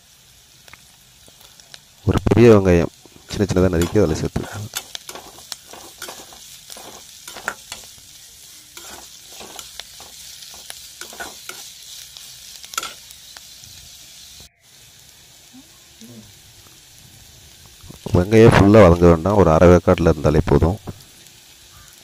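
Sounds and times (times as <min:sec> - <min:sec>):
onion sizzling in oil: 0:00.0 - 0:22.0
spatula scraping and knocking pan: 0:03.4 - 0:08.0, 0:08.8 - 0:11.7, 0:12.8 - 0:13.0.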